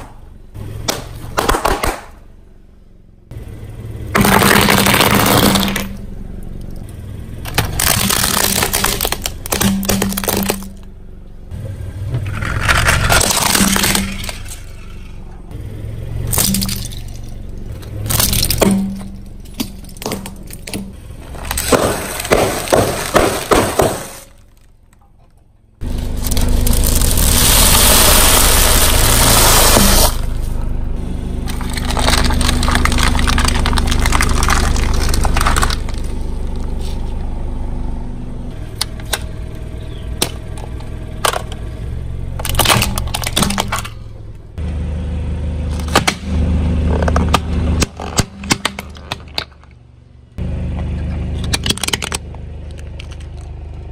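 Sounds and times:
car engine running: 0.0 - 53.9
tyre crushing brittle objects: 4.2 - 6.0, 7.4 - 10.9, 12.2 - 15.1, 16.3 - 24.8, 25.8 - 30.4, 31.4 - 37.1.

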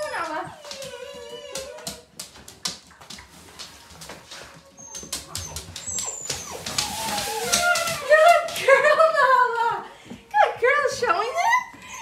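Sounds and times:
puppies whimpering: 0.0 - 2.1, 4.6 - 8.5, 11.3 - 12.0
scuffing and crinkling of nylon tunnel: 6.2 - 8.5.

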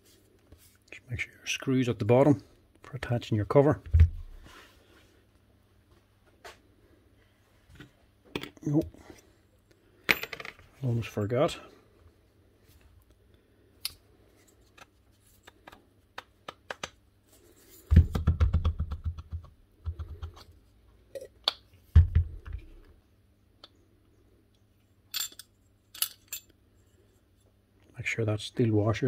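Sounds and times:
small metal parts clinking: 25.1 - 26.6.

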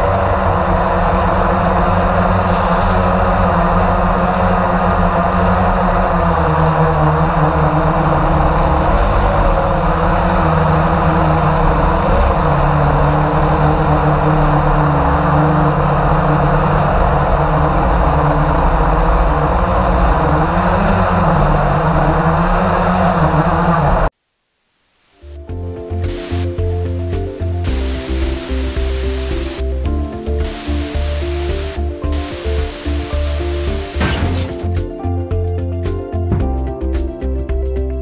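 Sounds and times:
drone propellers buzzing: 25.2 - 34.8.

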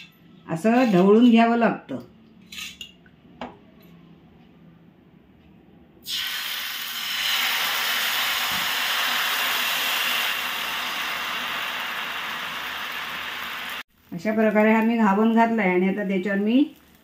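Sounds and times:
batter sizzling on a griddle: 6.1 - 17.0.

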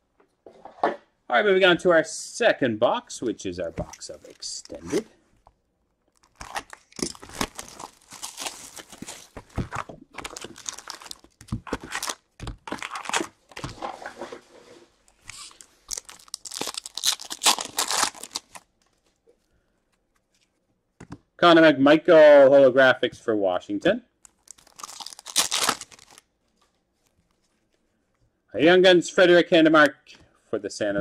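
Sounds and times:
foil packs crinkling: 6.1 - 13.8, 15.3 - 18.7, 24.3 - 26.2.

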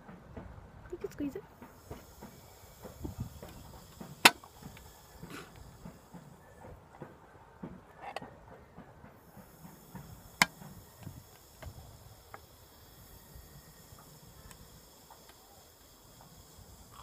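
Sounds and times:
small ticks: 9.9 - 17.0.

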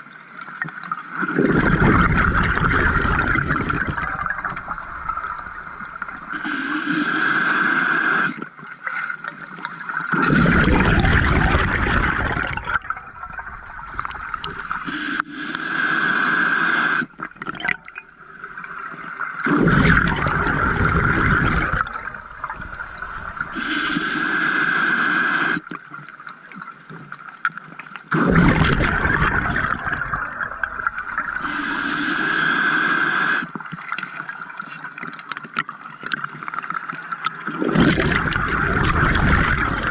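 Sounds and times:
rush of exhaust bubbles: 1.3 - 6.3, 10.1 - 14.9, 19.4 - 23.6, 28.1 - 31.5, 37.6 - 39.9
diver inhaling through regulator: 6.3 - 8.4, 14.4 - 17.1, 20.8 - 25.6, 31.0 - 33.5.

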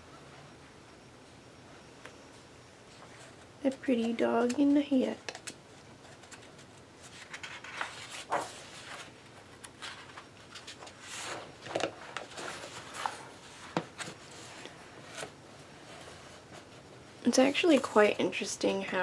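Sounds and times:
paper pages rustling: 5.3 - 16.8.

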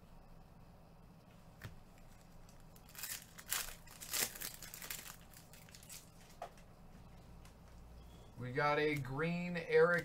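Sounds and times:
plastic wrappers crinkling: 2.0 - 6.4.

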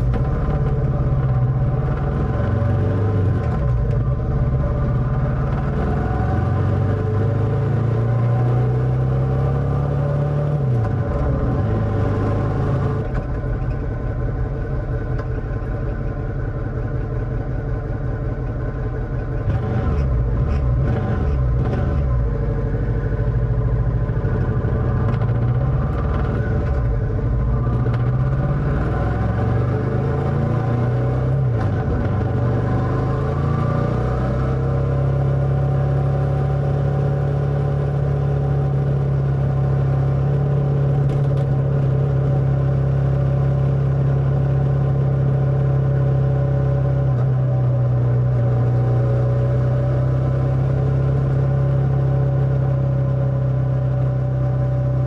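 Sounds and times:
motorcycle engine running: 0.0 - 8.0, 11.0 - 33.6.

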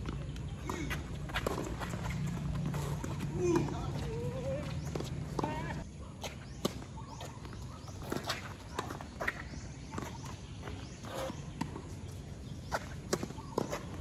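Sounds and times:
ball bouncing on court: 0.0 - 5.8.

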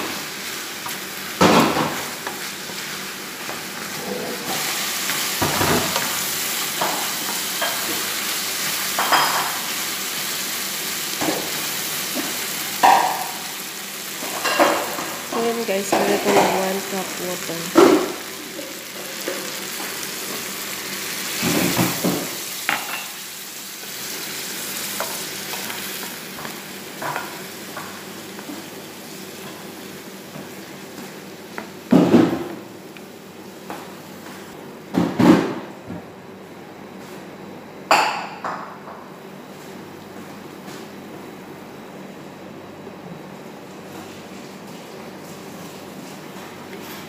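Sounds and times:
chicken sizzling in a frying pan: 0.0 - 31.9.

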